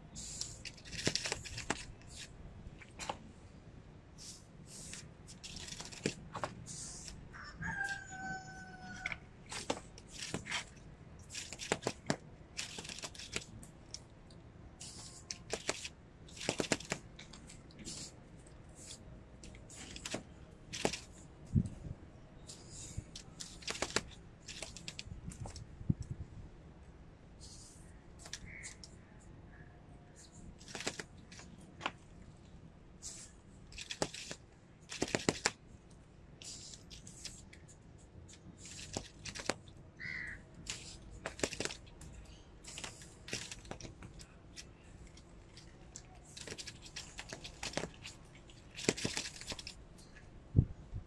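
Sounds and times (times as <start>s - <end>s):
rooster crowing: 7.3s - 9.2s.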